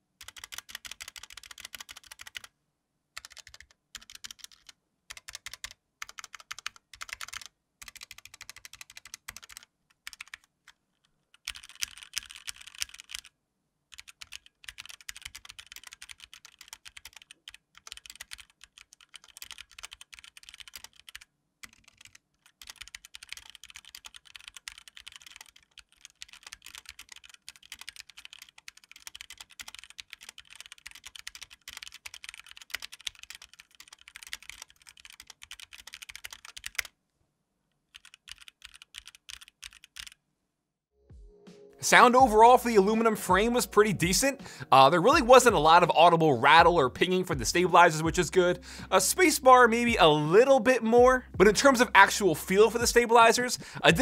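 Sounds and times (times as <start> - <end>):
mechanical keyboard typing: 0.2 - 2.5, 3.2 - 13.3, 13.9 - 36.9, 37.9 - 40.2.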